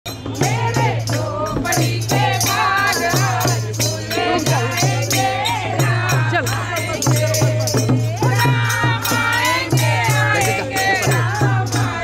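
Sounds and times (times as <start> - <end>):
group singing a devotional chant: 0.1 - 12.0
hand drum beat: 0.1 - 12.0
small brass hand cymbals jingling: 0.1 - 12.0.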